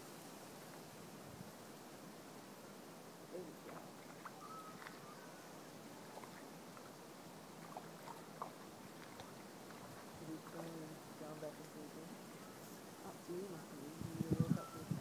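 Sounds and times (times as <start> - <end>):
outdoor background hiss: 0.0 - 15.0
faint chirps: 4.2 - 6.3, 12.3 - 13.1.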